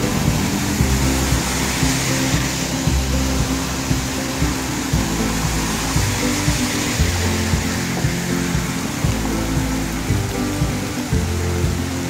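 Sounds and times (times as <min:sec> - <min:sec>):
background music with bass line: 0:00.0 - 0:12.0
heavy rain hissing: 0:00.0 - 0:12.0.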